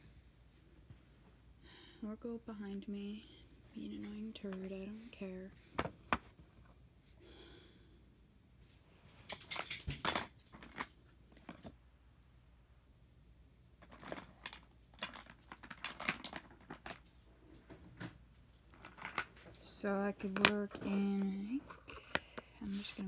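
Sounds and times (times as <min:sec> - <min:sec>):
small hard objects clinking: 0:13.8 - 0:17.1.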